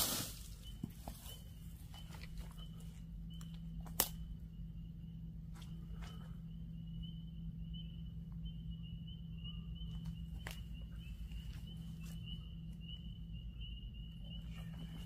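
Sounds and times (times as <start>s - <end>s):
low steady hum: 0.0s - 15.0s
night insects trilling: 0.0s - 15.0s
sharp clicks: 3.4s - 4.2s.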